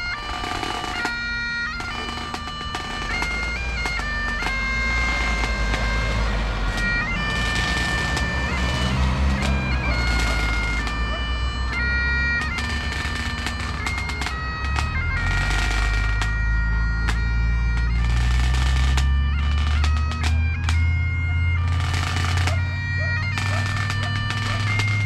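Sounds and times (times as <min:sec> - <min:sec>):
bagpipes playing slow tune: 0:00.0 - 0:25.0
traffic rumble: 0:00.0 - 0:25.0
car driving past: 0:04.6 - 0:13.8.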